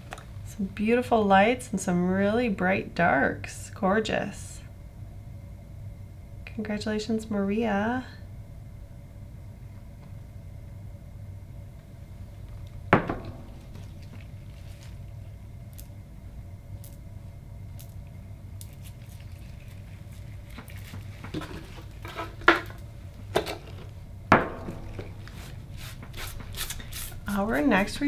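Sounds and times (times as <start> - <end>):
steady low hum: 0.0 - 28.0
knocks on a wooden cutting board: 13.0 - 13.4.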